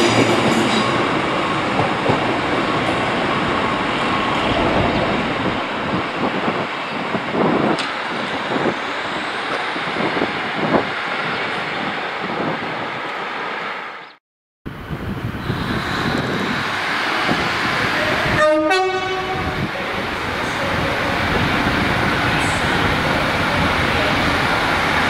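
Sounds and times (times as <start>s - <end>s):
train running: 0.0s - 13.9s, 14.7s - 25.0s
two-note train horn blast: 18.4s - 19.4s.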